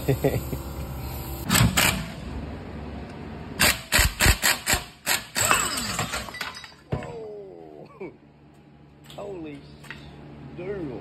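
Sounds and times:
impact wrench bursts: 3.6 - 6.1.

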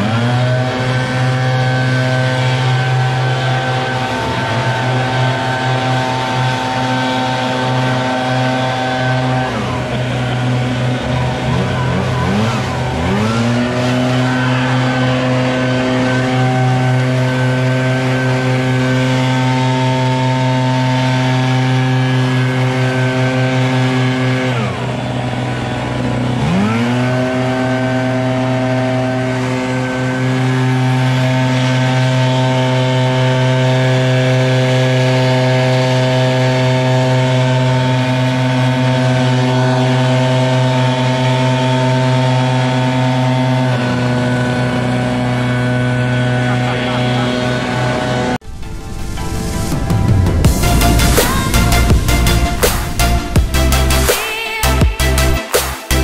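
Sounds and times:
leaf blower engine revving: 0.0 - 56.0
rush of air: 48.4 - 54.3.

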